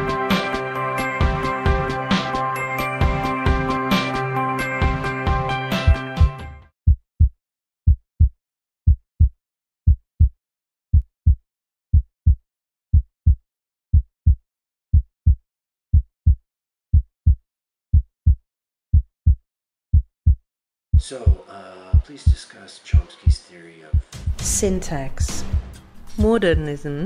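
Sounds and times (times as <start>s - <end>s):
heartbeat thumps: 7.9s - 8.3s, 8.9s - 9.3s, 9.9s - 10.3s, 10.9s - 27.0s.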